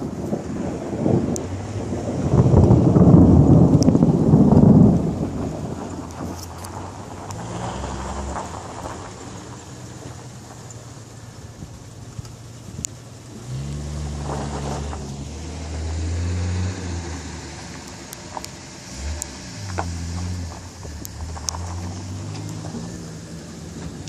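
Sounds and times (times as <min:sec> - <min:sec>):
rolling thunder: 0:00.0 - 0:10.1
rain hiss: 0:00.0 - 0:24.0.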